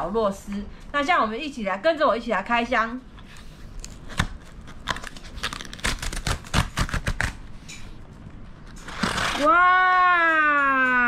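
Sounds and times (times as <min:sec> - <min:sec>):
cardboard ripping open: 0:03.8 - 0:07.4, 0:08.8 - 0:09.5.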